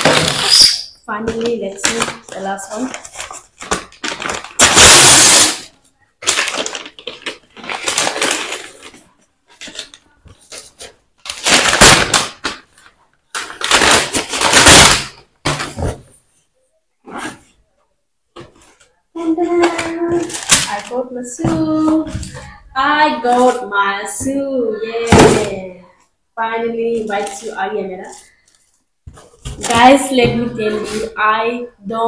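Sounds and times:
paper mailer tearing and crumpling: 0:00.0 - 0:00.8, 0:01.8 - 0:09.0, 0:10.6 - 0:12.7, 0:13.4 - 0:15.2, 0:20.0 - 0:21.0.

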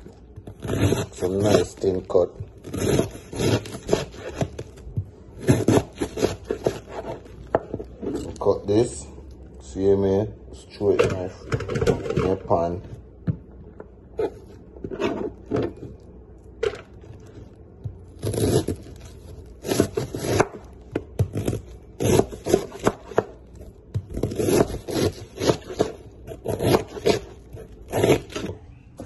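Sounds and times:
knife slicing cabbage: 0:00.4 - 0:04.8, 0:05.4 - 0:08.3, 0:18.1 - 0:23.4, 0:24.1 - 0:28.6.

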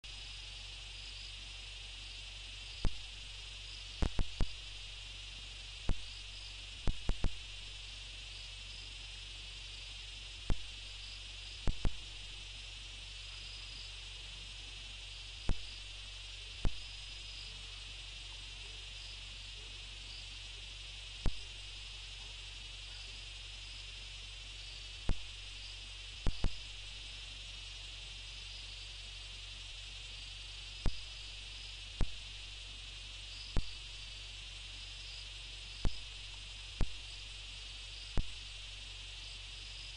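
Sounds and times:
crickets trilling: 0:00.0 - 0:39.9
low steady hum: 0:00.0 - 0:39.9
sharp clicks: 0:04.0 - 0:04.8, 0:26.3 - 0:26.8.

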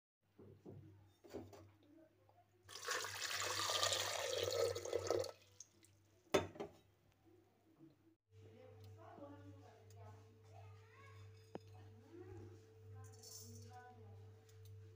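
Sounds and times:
water pouring into metal pot: 0:02.7 - 0:05.9.

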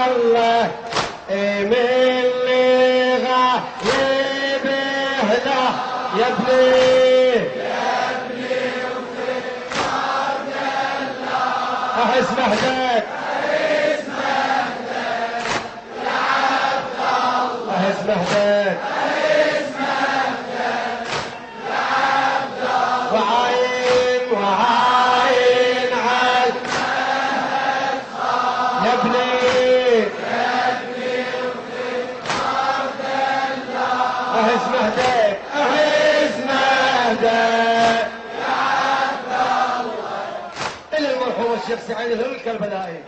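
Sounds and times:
person chanting held phrases: 0:11.9 - 0:13.3.

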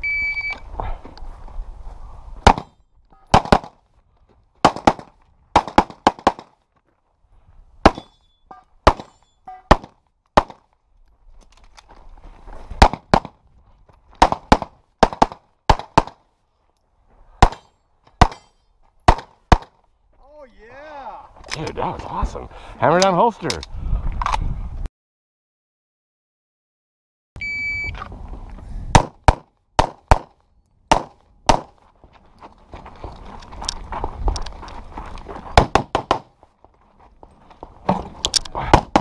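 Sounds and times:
pistol shots: 0:02.4 - 0:02.7, 0:03.3 - 0:03.8, 0:04.6 - 0:06.5, 0:08.8 - 0:10.6, 0:19.1 - 0:19.8, 0:29.0 - 0:31.7, 0:35.6 - 0:36.3.

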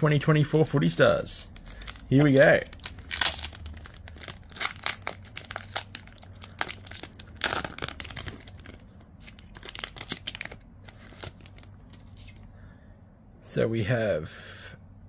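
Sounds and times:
wrapper crinkling: 0:01.6 - 0:12.4
wrapper tearing: 0:02.1 - 0:12.4.

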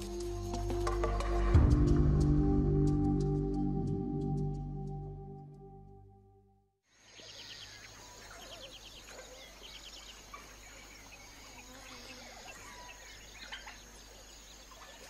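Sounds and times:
birds chirping and trilling: 0:06.9 - 0:15.0.

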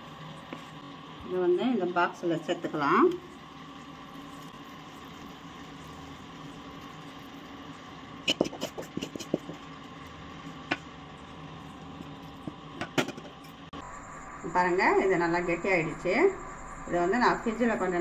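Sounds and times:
background hum: 0:00.0 - 0:18.0.

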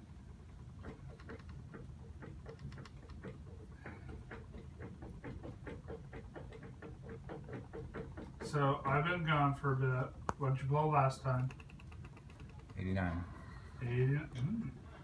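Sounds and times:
low steady hum: 0:00.0 - 0:15.0
keyboard typing clicks: 0:01.1 - 0:01.6, 0:02.4 - 0:03.2, 0:11.3 - 0:12.9.

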